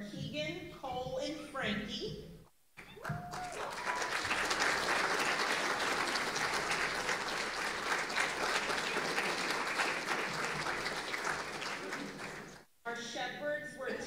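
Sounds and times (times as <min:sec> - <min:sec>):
audience applauding: 0:03.0 - 0:12.6.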